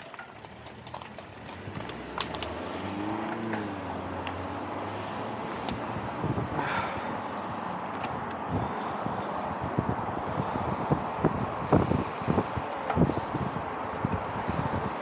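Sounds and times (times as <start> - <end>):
wind buffeting microphone: 5.4 - 15.0
steady rushing noise: 5.9 - 15.0.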